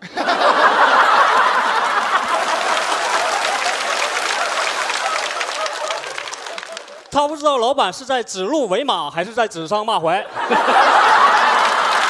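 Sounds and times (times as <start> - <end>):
audience laughing and clapping: 0.0 - 7.8, 10.1 - 12.0.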